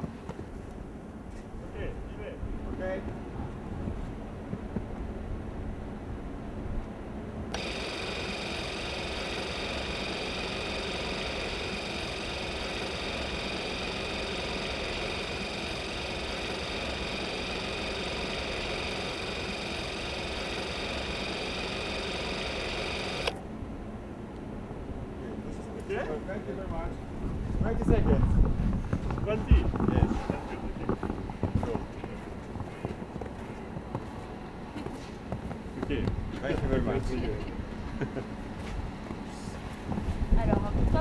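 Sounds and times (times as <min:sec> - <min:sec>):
film camera motor whirring: 0:07.5 - 0:23.4.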